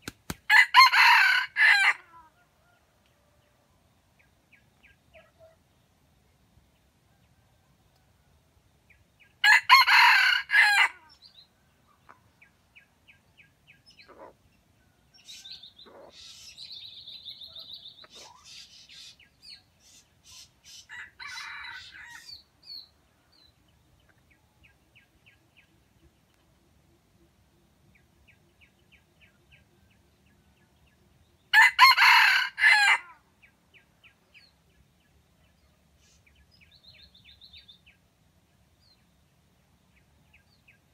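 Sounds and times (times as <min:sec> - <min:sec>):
rooster crowing: 0:00.5 - 0:02.2, 0:09.4 - 0:11.0, 0:20.9 - 0:22.4, 0:31.5 - 0:33.2
birds chirping: 0:11.1 - 0:32.2.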